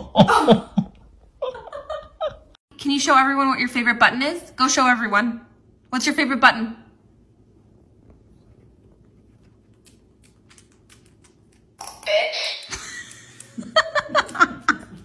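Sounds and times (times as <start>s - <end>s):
person laughing: 0.0s - 2.5s, 12.7s - 15.0s.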